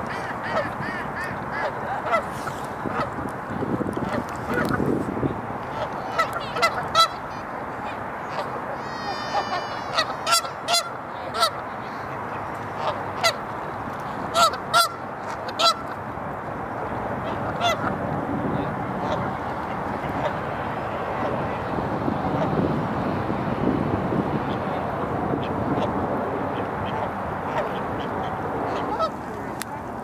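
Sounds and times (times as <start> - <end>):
geese honking: 0.0 - 3.2, 5.7 - 11.6, 14.3 - 16.0, 17.2 - 18.0, 25.4 - 29.6.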